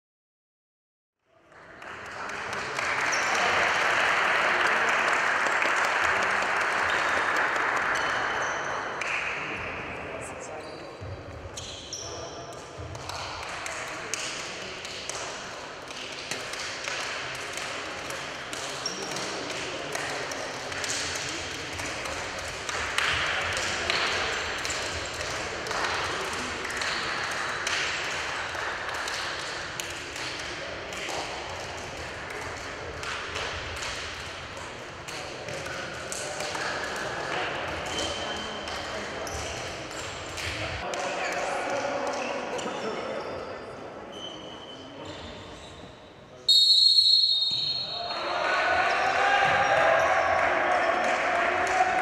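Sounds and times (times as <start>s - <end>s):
spectators applauding: 1.5s - 9.2s, 49.0s - 52.0s.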